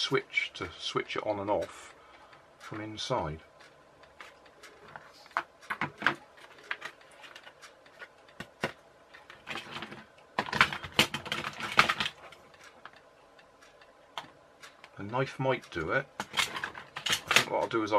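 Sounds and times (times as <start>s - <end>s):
plastic parts clicking and knocking: 4.2s - 13.0s, 16.2s - 17.8s.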